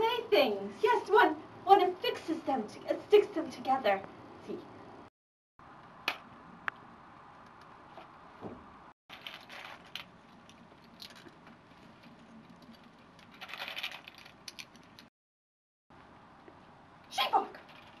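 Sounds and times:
clatter of plastic pieces: 9.1s - 15.1s
plastic bricks clicking and rattling: 9.1s - 15.1s.

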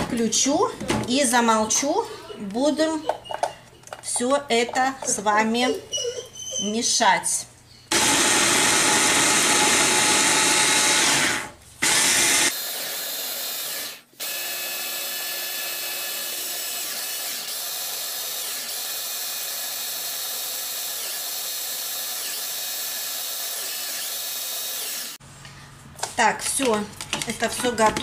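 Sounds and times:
hand blender grinding onion: 7.9s - 25.2s.

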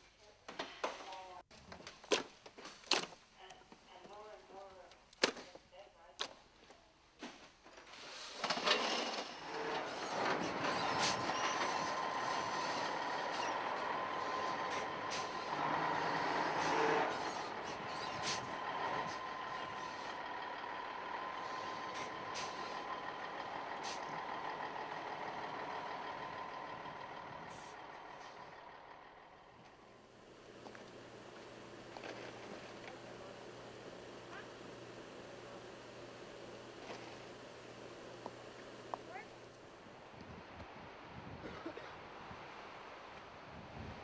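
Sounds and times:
truck engine hissing: 8.0s - 39.8s.

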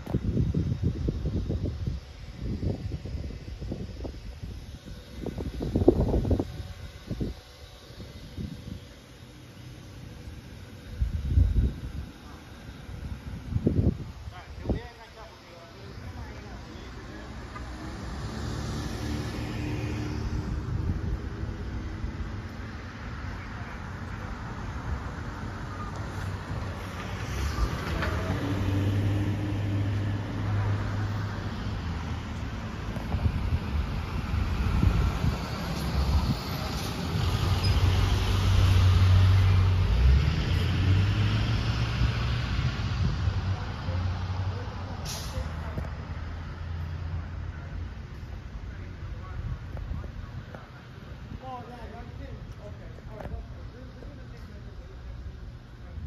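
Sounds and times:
low traffic rumble: 0.0s - 56.0s
car passing by: 16.8s - 21.7s, 24.7s - 33.3s, 34.0s - 47.7s.

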